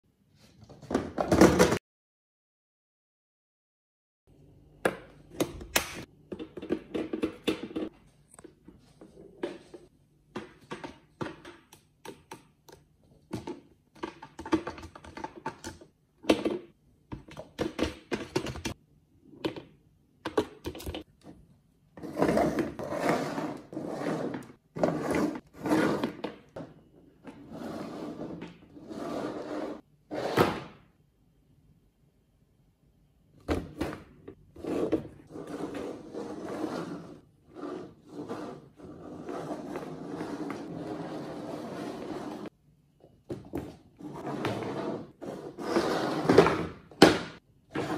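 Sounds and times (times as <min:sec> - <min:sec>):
box scraping across floor: 0:22.0 - 0:26.2, 0:27.4 - 0:30.5, 0:34.6 - 0:42.5, 0:44.0 - 0:46.5.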